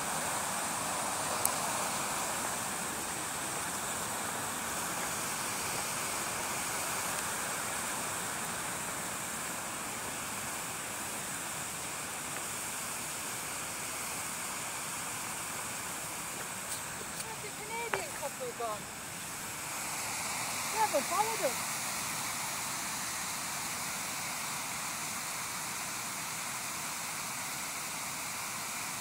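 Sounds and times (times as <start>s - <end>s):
steady rushing noise: 0.0s - 29.0s.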